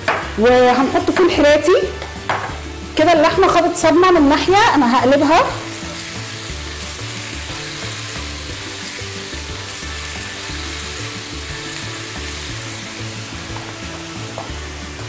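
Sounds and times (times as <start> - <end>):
meat sizzling in a frying pan: 0.0 - 15.0
spatula turning meat: 3.2 - 15.0.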